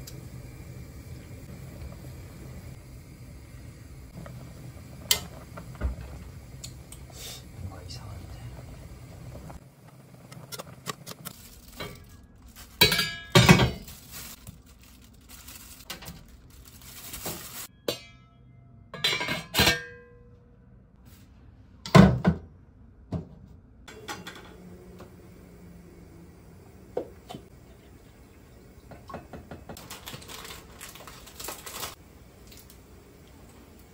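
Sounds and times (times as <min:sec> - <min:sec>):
cookware clanking: 0:17.7 - 0:20.2.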